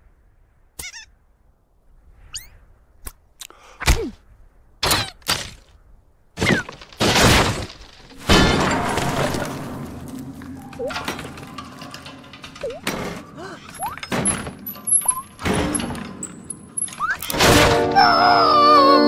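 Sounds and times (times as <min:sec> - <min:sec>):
quick rising squeaks: 0:02.3 - 0:02.6, 0:13.6 - 0:15.4, 0:16.0 - 0:17.4
sharp knocks and whacks: 0:06.4 - 0:09.2
breaking and shattering crashes: 0:06.4 - 0:16.2.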